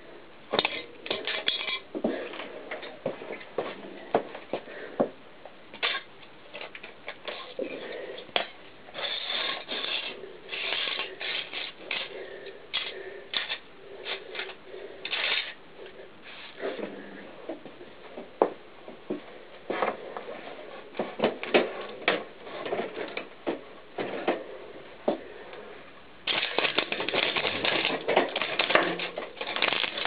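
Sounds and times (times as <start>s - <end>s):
plastic pieces clattering on concrete: 9.0s - 12.1s, 12.7s - 13.6s, 15.1s - 15.6s, 26.3s - 30.0s.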